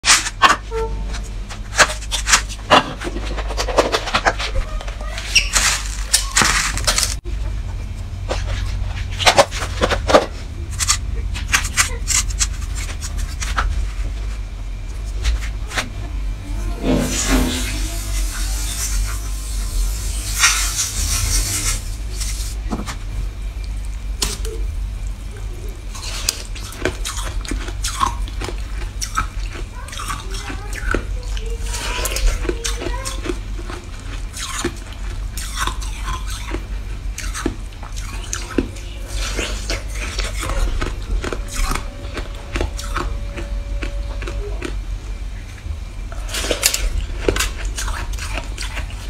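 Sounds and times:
steady low hum: 0.0 - 49.0
shaved ice crunching: 5.0 - 7.2.

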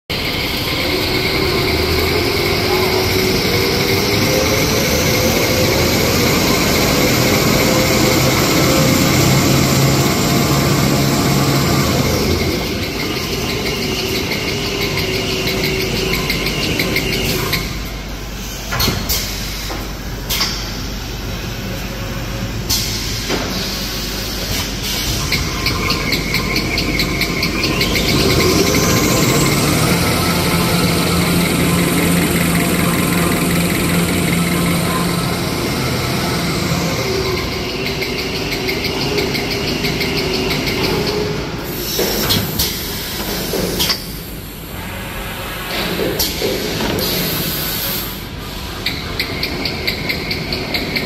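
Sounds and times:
machine rollers humming: 0.1 - 51.0
machine clattering: 25.0 - 41.3.

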